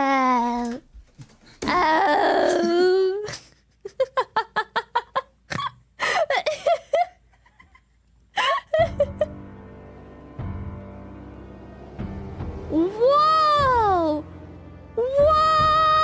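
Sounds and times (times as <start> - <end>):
steady music track: 8.8 - 16.0.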